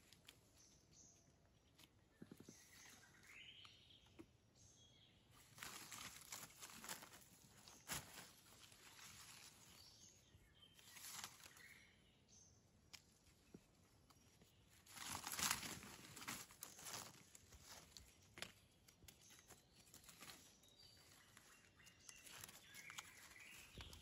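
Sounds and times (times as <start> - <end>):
faint bird chirps: 0.0 - 24.0
rustling in dry leaves: 5.4 - 10.2, 10.8 - 11.8, 14.4 - 24.0.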